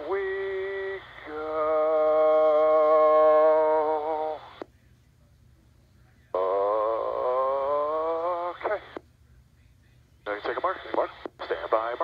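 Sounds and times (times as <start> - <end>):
radio voice call: 0.0 - 4.7, 6.3 - 9.0, 10.2 - 12.0
radio squelch click: 10.5 - 11.8.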